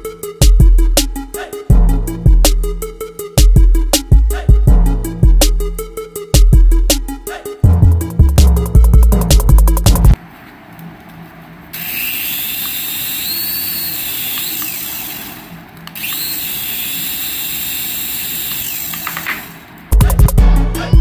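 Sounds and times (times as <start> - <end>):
toy helicopter rotors whirring: 11.7 - 19.7.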